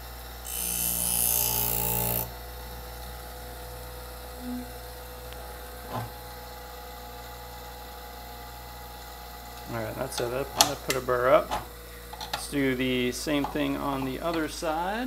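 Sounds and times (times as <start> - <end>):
scissor blade grinding on wheel: 0.4 - 2.3
sharpener motor humming: 0.4 - 7.7.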